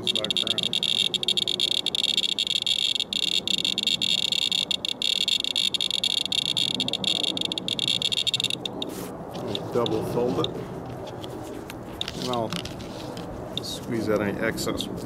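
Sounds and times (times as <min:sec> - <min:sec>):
geiger counter clicking rapidly: 0:00.0 - 0:08.9.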